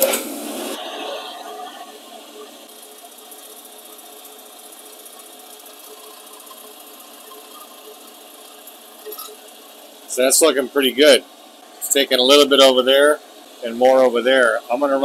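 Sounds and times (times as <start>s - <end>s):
milling machine running: 0.0s - 11.2s.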